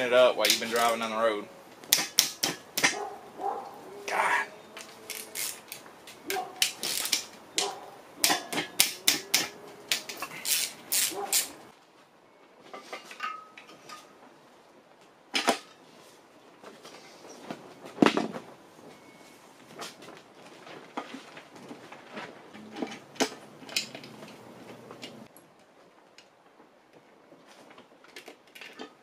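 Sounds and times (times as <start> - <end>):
ratchet wrench clicking: 5.1 - 5.8, 6.6 - 7.3, 8.2 - 11.6.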